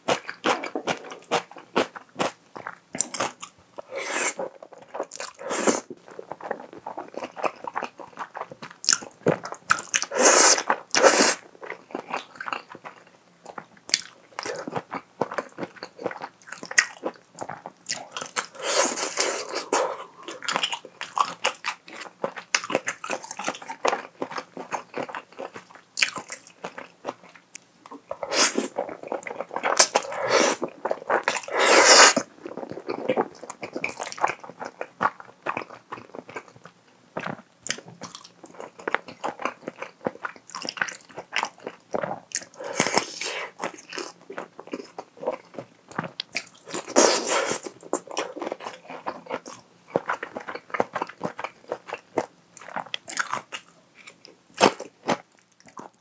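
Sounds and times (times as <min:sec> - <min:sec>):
wet chewing: 0:00.1 - 0:36.6, 0:37.2 - 0:56.0
slurping noodles: 0:03.9 - 0:04.6, 0:05.4 - 0:05.9, 0:10.1 - 0:11.4, 0:18.5 - 0:20.5, 0:28.2 - 0:29.0, 0:29.6 - 0:32.3, 0:46.7 - 0:47.7.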